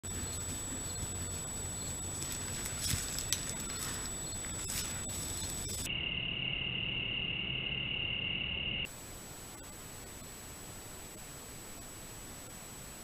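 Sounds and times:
high-pitched buzzing drone: 0.0s - 8.9s
high electronic whine: 0.0s - 10.4s.

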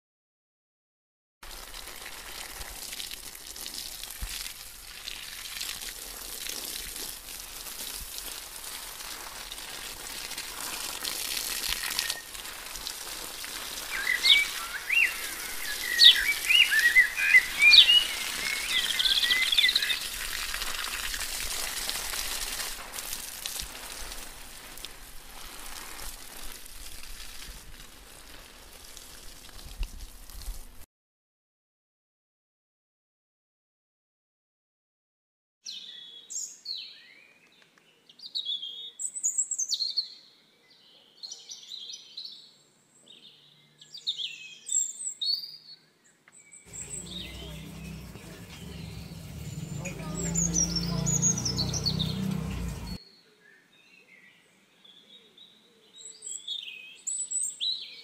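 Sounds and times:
high chirping calls: 13.8s - 20.2s, 46.7s - 53.0s.

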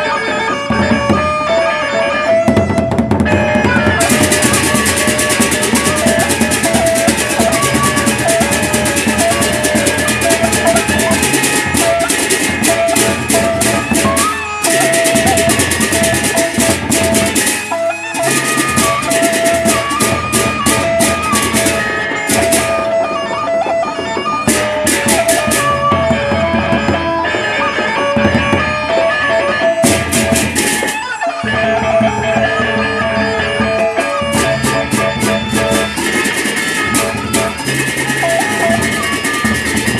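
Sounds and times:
gongs: 0.0s - 39.9s
held melodic line: 0.0s - 39.9s
barrel drums beaten with sticks: 2.6s - 23.0s.

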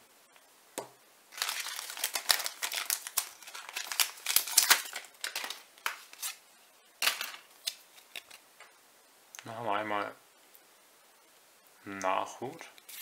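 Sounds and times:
foil wrapper crinkling: 1.3s - 6.4s.

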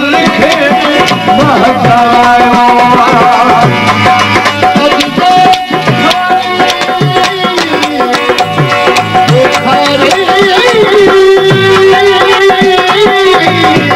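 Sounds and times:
hand drum rhythm: 0.0s - 13.9s.

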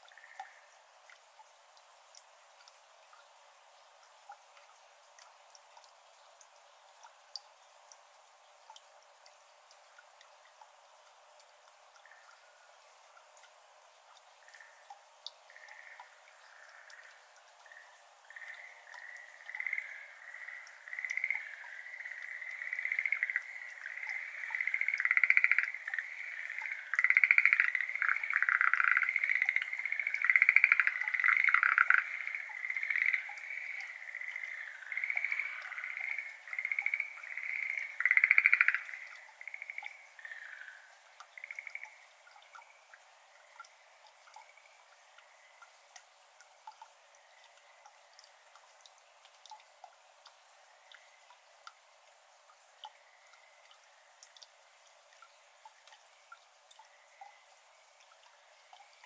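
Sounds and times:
frogs trilled croaking: 0.0s - 0.8s, 12.0s - 12.8s, 14.4s - 46.0s, 47.1s - 48.6s, 50.4s - 51.6s, 52.6s - 54.5s, 55.2s - 59.0s.

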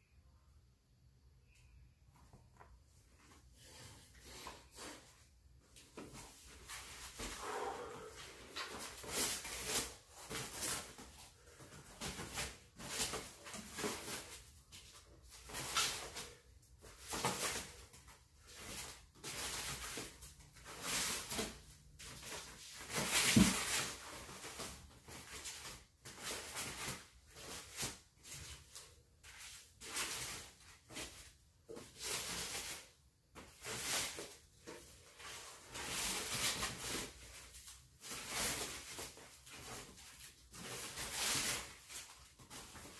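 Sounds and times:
plastic wrap rustling: 5.8s - 42.9s.

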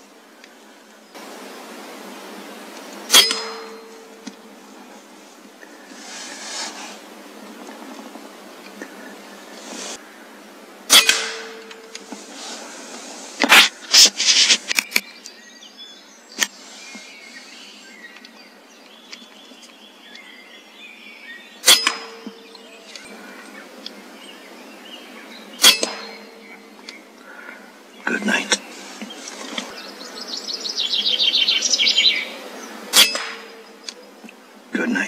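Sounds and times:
air rifle shots: 10.9s - 11.8s, 25.6s - 26.4s, 32.9s - 33.6s.

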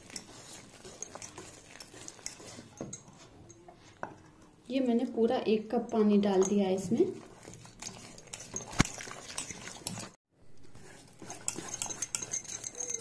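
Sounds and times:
whisk wires scraping steel bowl: 0.0s - 3.7s, 6.4s - 13.0s
sharp clink of whisk: 11.3s - 13.0s.

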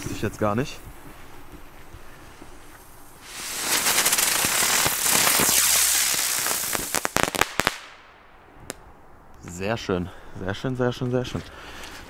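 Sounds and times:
firework crackling pops: 2.4s - 8.9s
firework hissing upward: 3.0s - 8.2s.

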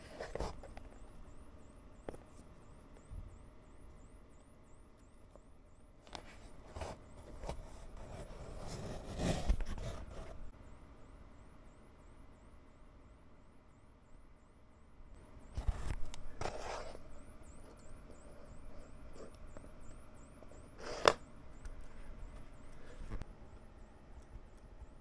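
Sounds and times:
faint high-pitched whine: 0.0s - 25.0s
low room hum: 0.0s - 25.0s
tweezers scraping on cutting mat: 20.6s - 21.2s.

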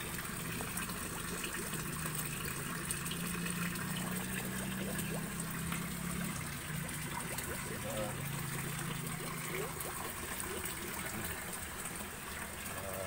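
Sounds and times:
water trickling and splashing: 0.0s - 13.0s.

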